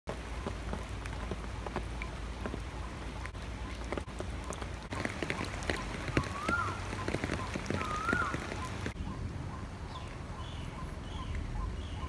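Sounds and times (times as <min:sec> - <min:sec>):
rain falling on puddles: 0:00.1 - 0:09.0.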